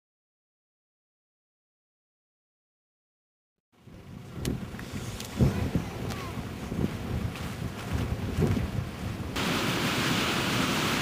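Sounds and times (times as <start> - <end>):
wind buffeting microphone: 3.8 - 9.4
rush of falling water: 9.2 - 11.0.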